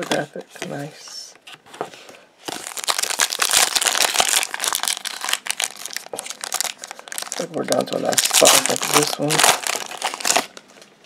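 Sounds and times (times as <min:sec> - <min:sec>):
foil wrapper crinkling: 0:02.5 - 0:10.9.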